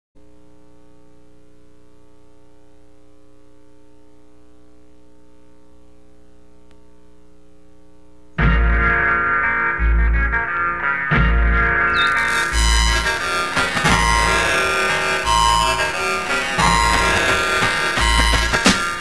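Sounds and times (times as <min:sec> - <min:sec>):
electrical mains hum: 0:00.2 - 0:08.4, 0:11.6 - 0:19.0
loud guitar rock music: 0:08.4 - 0:19.0.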